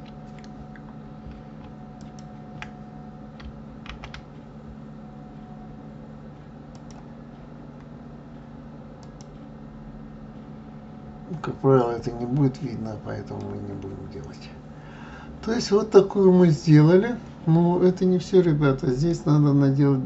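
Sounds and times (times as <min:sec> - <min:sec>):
steady low hum: 0:00.0 - 0:20.0
keyboard and mouse clicks: 0:06.7 - 0:07.0.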